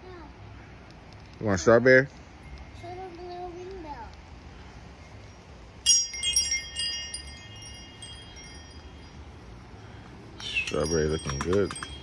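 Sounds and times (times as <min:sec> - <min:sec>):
tubular wind chime ringing: 0:05.8 - 0:12.0.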